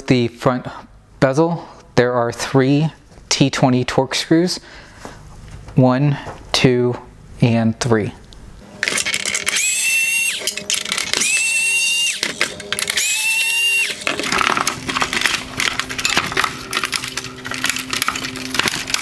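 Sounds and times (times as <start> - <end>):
electric screwdriver whining: 8.8 - 19.0
plastic clicking and rattling: 10.4 - 11.4, 12.2 - 13.1, 13.9 - 19.0.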